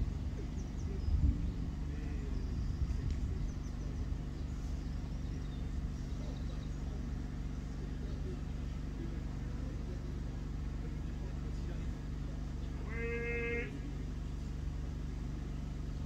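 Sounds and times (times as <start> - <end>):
steady low rumble: 0.0 - 16.0
faint bird chirps: 0.3 - 8.4.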